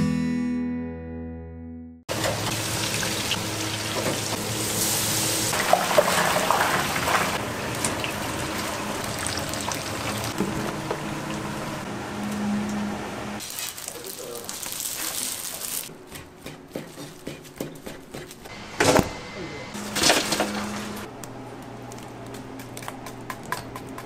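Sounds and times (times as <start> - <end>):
water running: 2.1 - 15.9.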